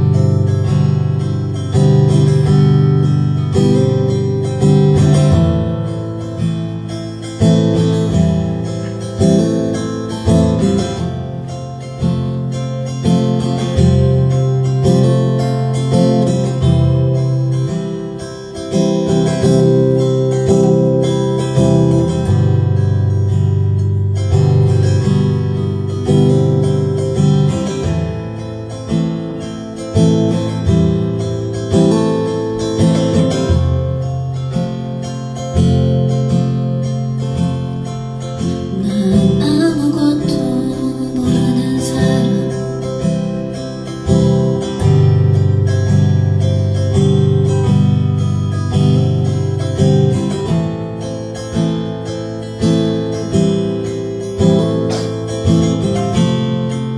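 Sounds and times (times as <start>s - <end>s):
acoustic guitar strummed and picked: 0.0s - 56.9s
woman singing: 38.7s - 43.0s.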